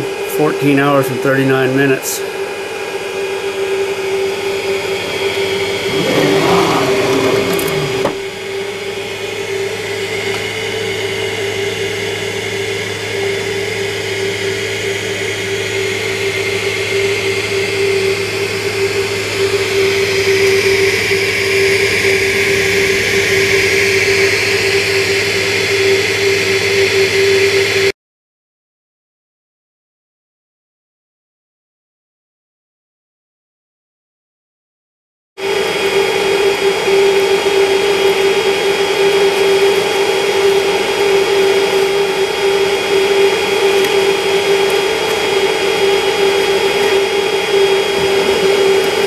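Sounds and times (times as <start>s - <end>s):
cooling fans whirring: 0.0s - 27.9s, 35.4s - 49.0s
low hum: 2.4s - 27.9s, 35.5s - 49.0s.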